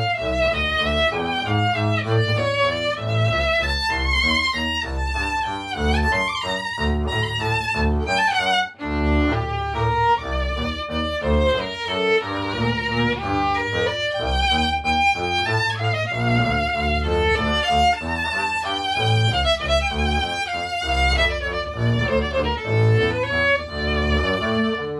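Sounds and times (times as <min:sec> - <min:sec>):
bowed double bass: 0:00.0 - 0:24.9
violin melody: 0:00.0 - 0:24.9.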